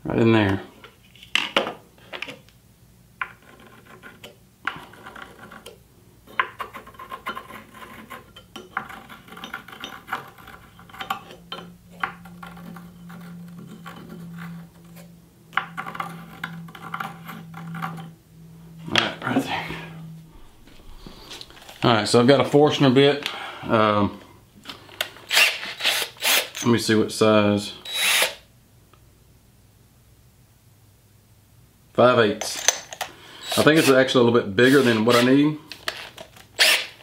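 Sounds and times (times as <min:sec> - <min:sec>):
low steady hum: 0:00.0 - 0:37.0
pencil scratching on plywood: 0:06.4 - 0:11.2.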